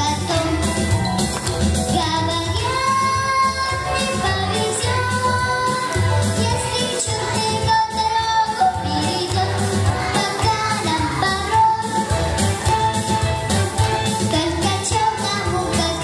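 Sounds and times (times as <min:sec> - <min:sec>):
girl singing into a microphone: 0:00.0 - 0:00.8, 0:01.9 - 0:12.0, 0:14.3 - 0:16.0
instrumental music with bass beat: 0:00.0 - 0:16.0.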